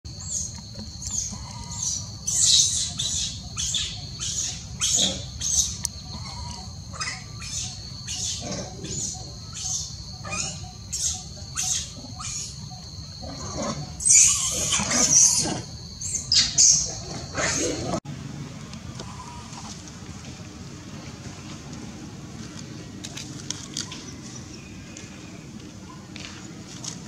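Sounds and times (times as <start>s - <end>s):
baby monkey distress calls: 1.0s - 12.8s, 13.4s - 15.4s, 16.0s - 17.7s.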